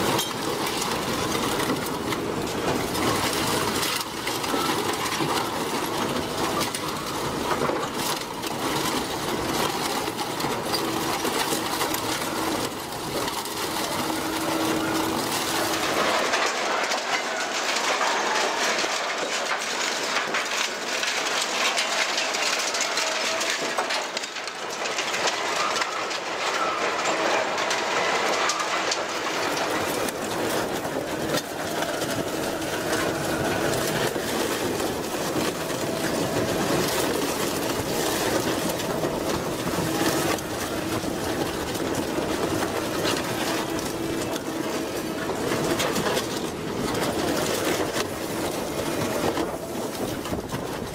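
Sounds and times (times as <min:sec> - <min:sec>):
machine hum: 0:00.0 - 0:23.8
metal clanking and crunching: 0:00.0 - 0:50.9.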